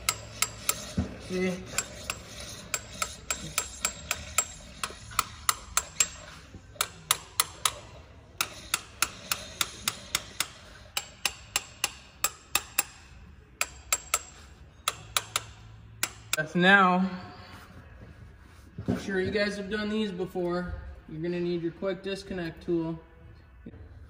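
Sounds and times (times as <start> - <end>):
ratchet wrench clicking: 0.0 - 1.0, 1.7 - 16.4.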